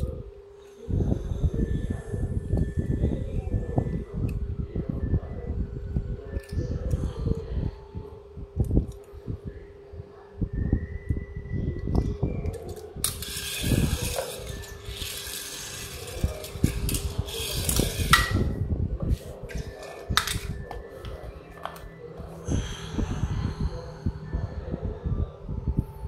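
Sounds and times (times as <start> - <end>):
faint steady hum: 0.0 - 26.0
toy cars clicking on tile floor: 12.5 - 18.5, 19.5 - 20.6
scraping rattle: 12.7 - 18.6.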